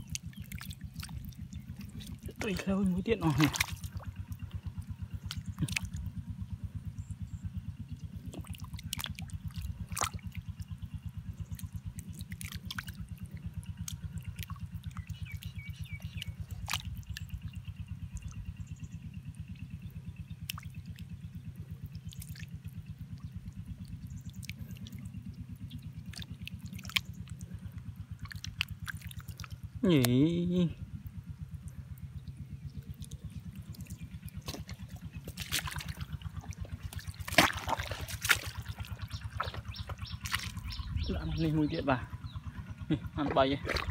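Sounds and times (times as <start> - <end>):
hand squelching through mud: 0.0 - 6.2, 8.1 - 18.6, 20.4 - 30.2, 32.6 - 41.7, 42.6 - 43.9
small wet clicks and drips: 0.0 - 30.2, 30.9 - 43.9
low rhythmic throb: 29.6 - 43.9.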